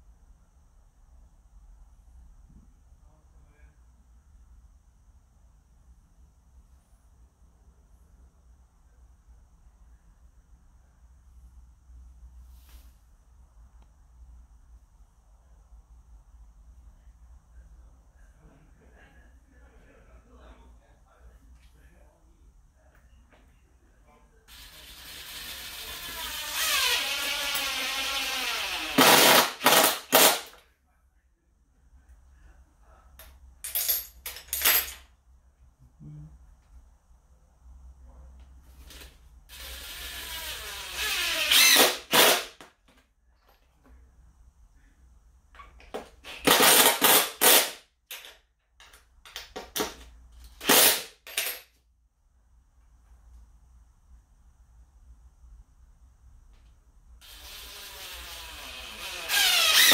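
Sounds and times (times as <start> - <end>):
cordless drill whining: 24.5 - 30.6, 39.5 - 42.5, 57.2 - 59.9
power driver driving screws: 24.6 - 30.6, 39.5 - 42.6, 46.3 - 47.8, 50.6 - 51.4, 57.2 - 59.9.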